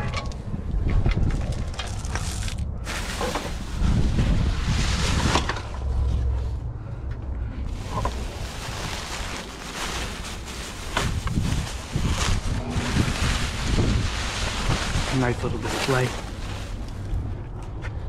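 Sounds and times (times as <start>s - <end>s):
wind buffeting microphone: 0.0s - 18.0s
plastic bags rustling: 1.6s - 5.8s, 7.7s - 17.3s.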